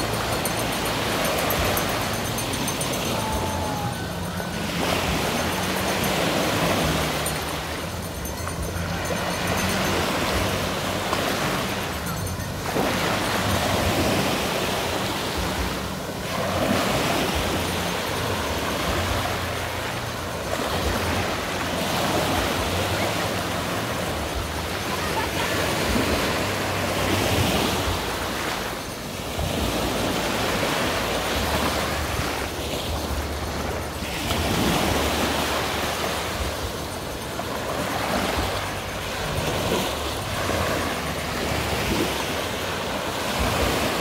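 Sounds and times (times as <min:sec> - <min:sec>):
surf washing in shallows: 0:00.0 - 0:44.0.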